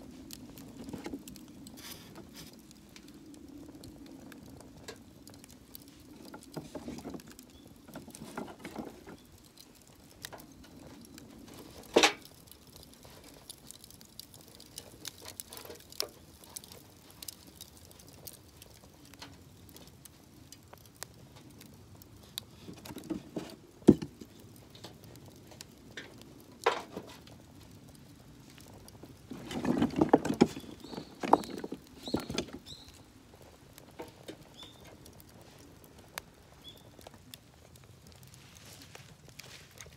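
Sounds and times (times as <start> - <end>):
wooden sticks knocking and scraping: 6.0 - 9.2, 11.6 - 12.3, 22.6 - 25.0, 26.0 - 27.3, 29.3 - 32.6.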